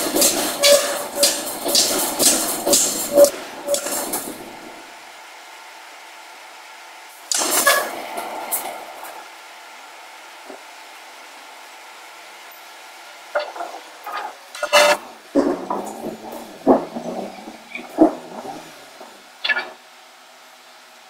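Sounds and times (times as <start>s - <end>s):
forging hammer metal clanks: 0.0s - 4.8s
steady low hum: 0.0s - 21.0s.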